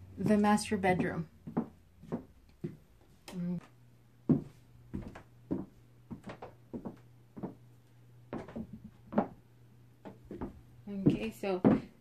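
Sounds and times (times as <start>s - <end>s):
footsteps thudding: 0.2s - 2.8s, 4.3s - 7.6s, 8.3s - 9.4s, 10.0s - 12.0s.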